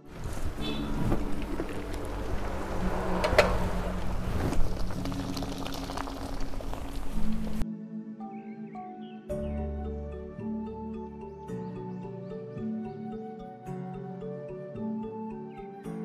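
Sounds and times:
water boiling hard: 0:03.1 - 0:07.6.

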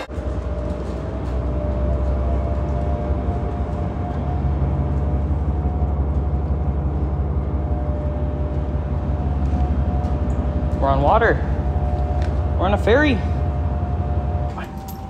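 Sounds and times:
ship engines deep rumble: 0:00.0 - 0:15.0.

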